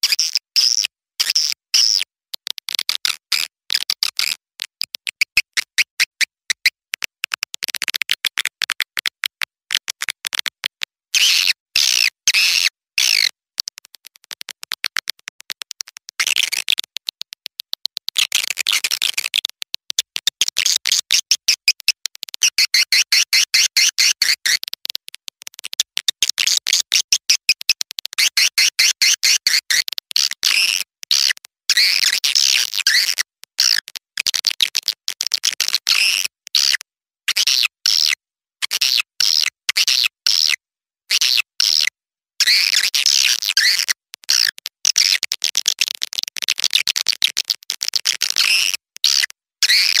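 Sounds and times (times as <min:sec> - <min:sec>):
recorded swiftlet calls: 0:11.2 - 0:16.9, 0:41.7 - 0:46.2.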